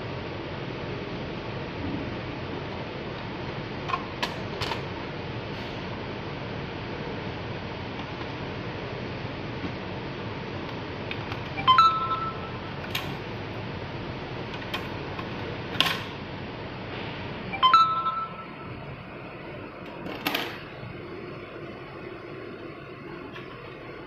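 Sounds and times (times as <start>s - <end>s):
brief ringing tone: 11.6s - 12.8s, 17.5s - 18.9s.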